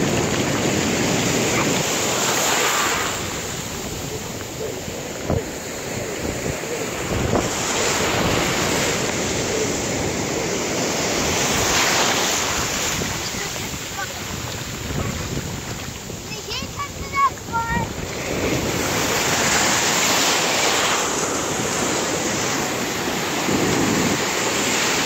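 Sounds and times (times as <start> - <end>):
ocean surf breaking: 0.0 - 25.0
wind buffeting microphone: 0.0 - 25.0.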